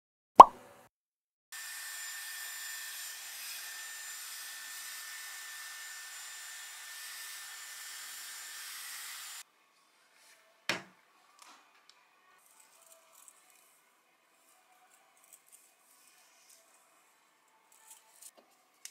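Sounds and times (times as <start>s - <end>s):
hair styler blowing air: 1.6s - 9.4s.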